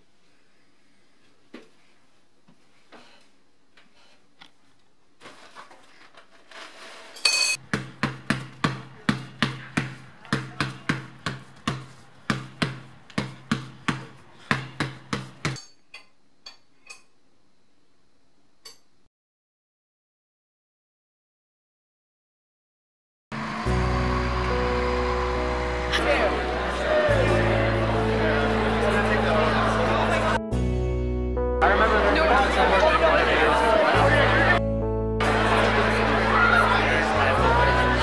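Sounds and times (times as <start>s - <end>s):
spoon clinking in bowl: 7.2s - 7.6s
basketball bouncing: 7.6s - 15.6s.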